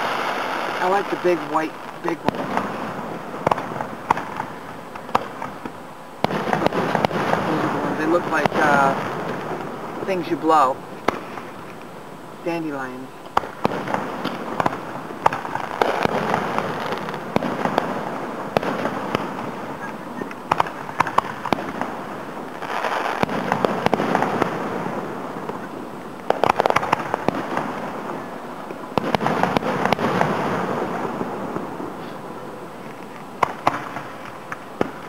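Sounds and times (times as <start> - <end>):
firework shells bursting: 0.0 - 32.2, 32.8 - 35.0
firework crackling: 0.0 - 35.0.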